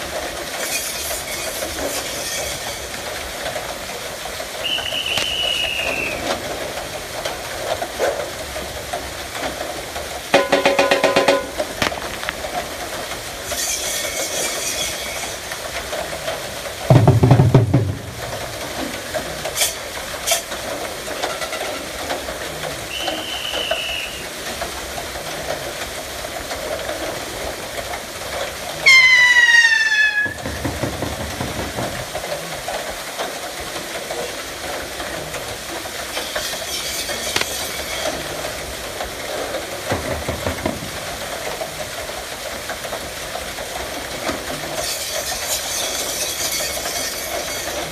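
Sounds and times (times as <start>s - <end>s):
wooden gearing clattering: 30.4s - 32.4s.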